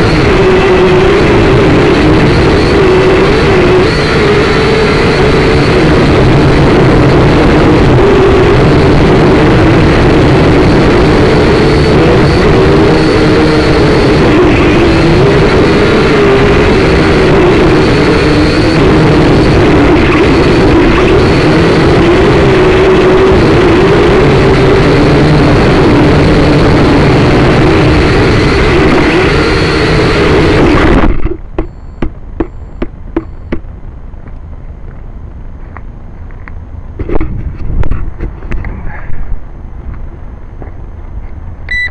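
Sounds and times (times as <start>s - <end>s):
drone propellers whining: 0.0s - 35.6s.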